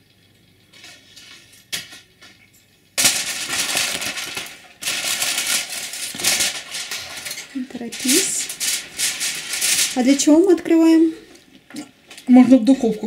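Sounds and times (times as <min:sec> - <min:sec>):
aluminium foil crinkling: 0:03.0 - 0:13.0.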